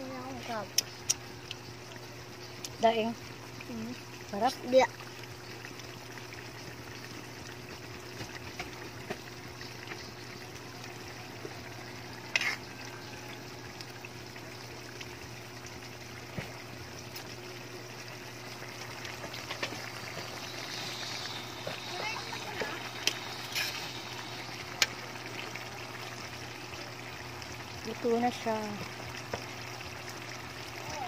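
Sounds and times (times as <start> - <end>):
beans simmering in a wok: 0.0 - 31.0
ladle stirring beans: 12.3 - 12.7, 19.4 - 24.1.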